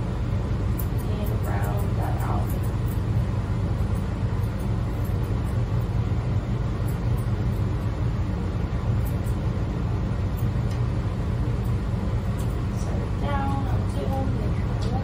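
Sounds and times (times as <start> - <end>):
low machine rumble: 0.0 - 15.0
scissors snipping: 0.7 - 3.1, 9.0 - 9.4.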